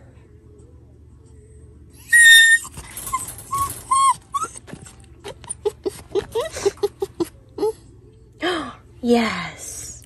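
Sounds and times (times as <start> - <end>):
puppy whining and yipping: 2.0 - 7.3.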